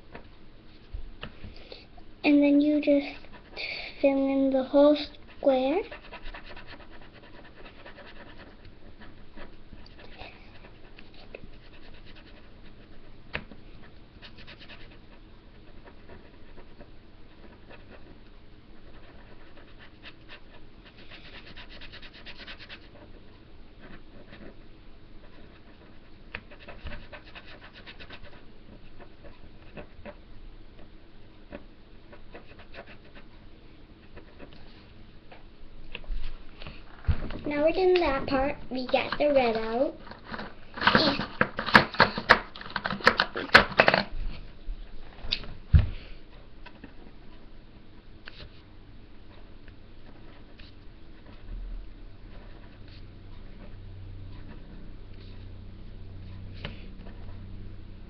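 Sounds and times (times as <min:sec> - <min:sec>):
marker scribbling on paper: 0:05.1 - 0:13.2, 0:14.2 - 0:18.2, 0:18.8 - 0:23.2, 0:25.2 - 0:30.2, 0:31.5 - 0:33.3.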